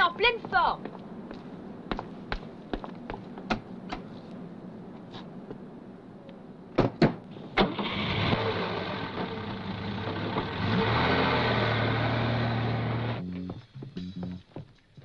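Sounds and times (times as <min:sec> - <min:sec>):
car engine starting and running: 0:07.4 - 0:13.4.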